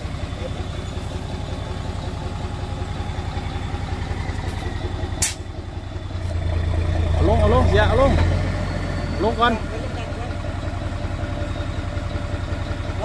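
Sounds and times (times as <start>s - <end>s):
diesel truck engine running: 0.0s - 13.0s
short sharp hiss: 5.2s - 5.5s.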